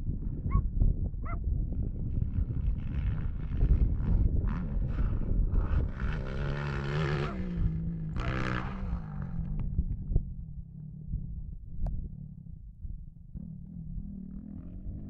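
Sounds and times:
low rumble: 0:00.0 - 0:15.0
motorbike engine revving: 0:02.3 - 0:09.6.

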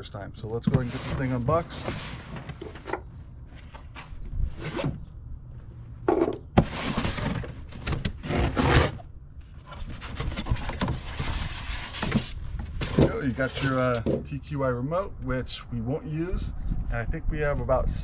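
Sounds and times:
cardboard flaps scraping: 0:06.6 - 0:09.0, 0:09.6 - 0:14.0.

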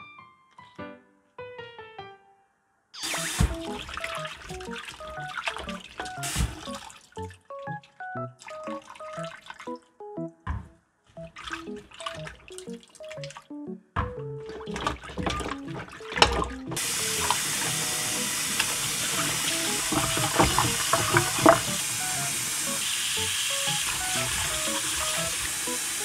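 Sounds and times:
water splashing: 0:03.0 - 0:09.8, 0:11.2 - 0:13.5, 0:14.4 - 0:25.8
meat sloshing in water: 0:03.4 - 0:07.5, 0:11.2 - 0:13.5, 0:14.4 - 0:17.7, 0:18.4 - 0:21.9
tap running into bowl: 0:14.6 - 0:22.4.

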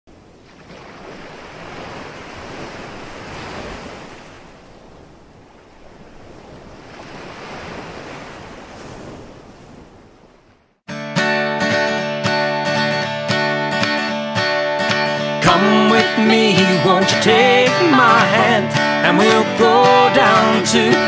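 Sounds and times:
small waves breaking on sand: 0:00.1 - 0:10.8
acoustic guitar: 0:10.9 - 0:21.0.

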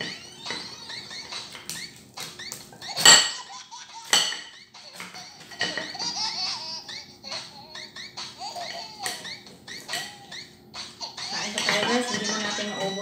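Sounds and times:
knife clinking against plate: 0:03.0 - 0:06.0, 0:11.4 - 0:12.7.

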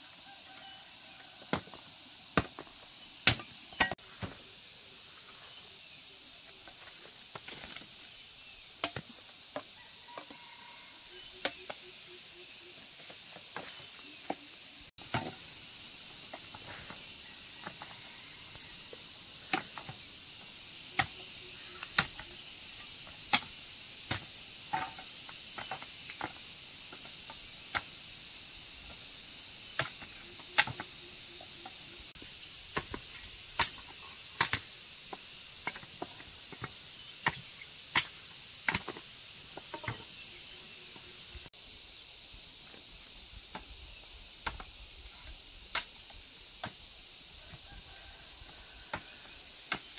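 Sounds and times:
insects droning: 0:00.0 - 0:49.9
machete chopping sugar cane: 0:02.3 - 0:04.0, 0:08.8 - 0:09.1.

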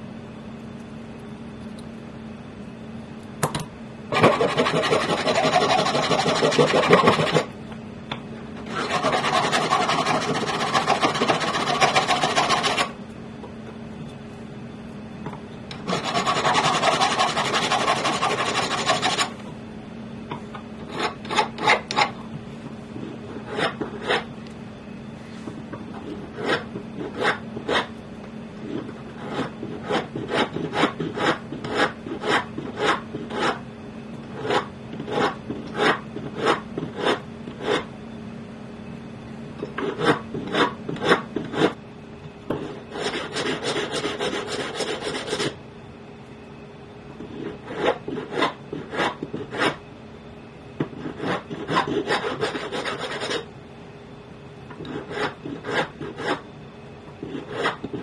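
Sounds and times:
hand file rasping on metal: 0:04.2 - 0:07.5, 0:08.7 - 0:12.9, 0:15.8 - 0:19.3.

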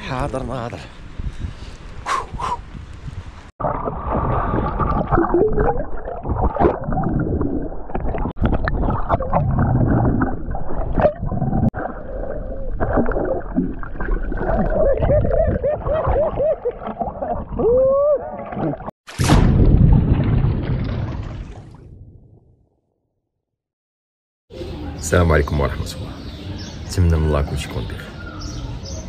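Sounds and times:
underwater gurgling and bubbling: 0:03.6 - 0:18.9.

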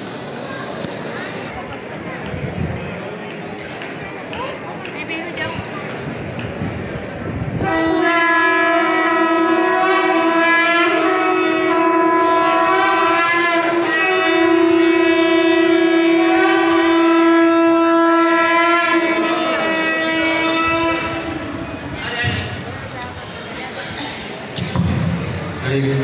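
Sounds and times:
conch shell blown: 0:07.6 - 0:21.7.

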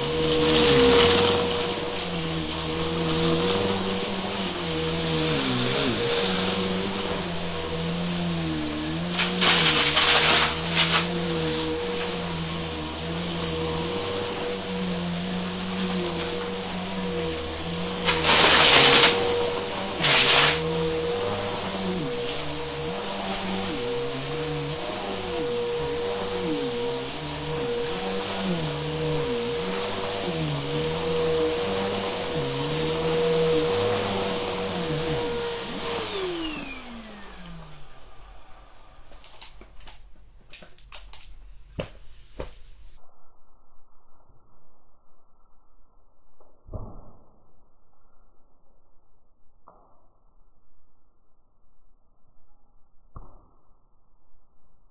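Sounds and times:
vacuum cleaner running: 0:00.0 - 0:40.2.

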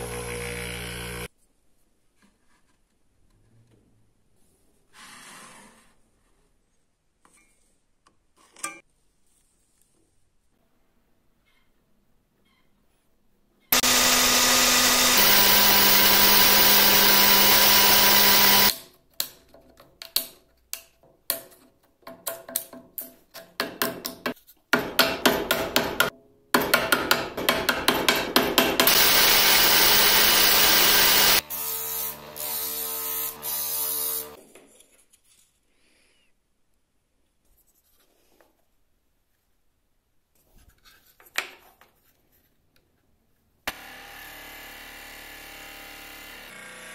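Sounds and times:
quieter motor humming: 0:00.0 - 0:01.3, 0:13.8 - 0:18.7
woodworking power tool running: 0:00.0 - 0:01.3, 0:13.7 - 0:18.7, 0:28.8 - 0:34.4, 0:43.7 - 0:46.9.

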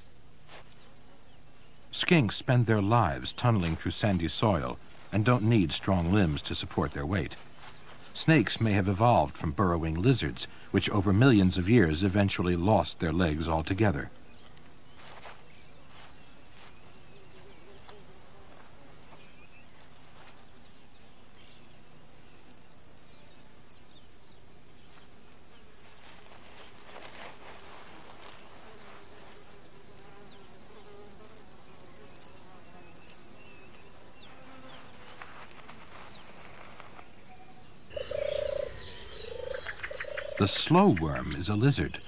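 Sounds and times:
insect chorus chirring: 0:00.0 - 0:42.0
light rustling and scratching: 0:25.8 - 0:29.6, 0:34.2 - 0:37.2.

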